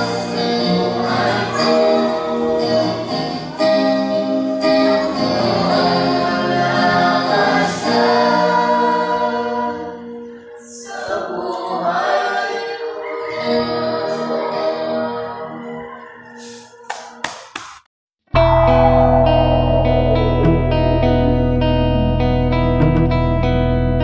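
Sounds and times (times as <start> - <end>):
group singing a hymn: 0.0 - 16.7
electric guitar: 18.4 - 24.0.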